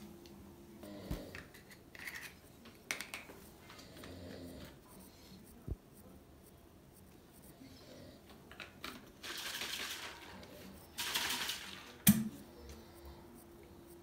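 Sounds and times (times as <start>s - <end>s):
liquid pouring into shaker bottle: 9.2s - 10.2s.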